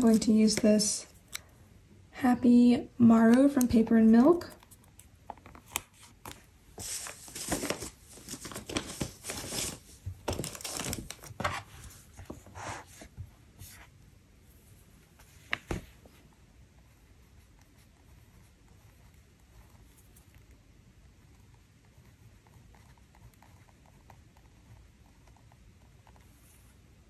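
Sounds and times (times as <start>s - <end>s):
sticker paper rustling and crinkling: 0.0s - 1.4s, 3.4s - 12.5s.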